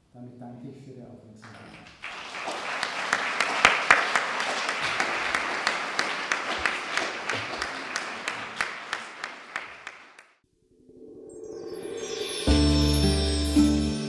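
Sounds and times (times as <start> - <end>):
audience applauding: 1.4 - 10.4.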